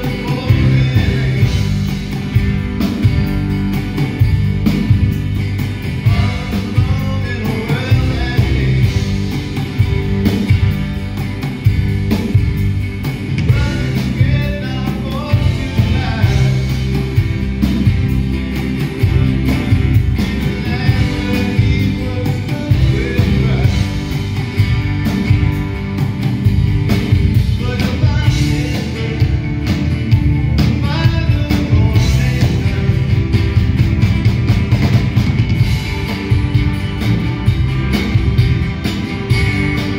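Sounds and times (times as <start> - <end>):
man singing into microphone: 0.0 - 1.6, 6.1 - 8.9, 13.5 - 16.7, 20.6 - 23.9, 27.6 - 29.4, 30.8 - 33.2
drum kit: 0.0 - 39.9
guitars: 0.0 - 39.9.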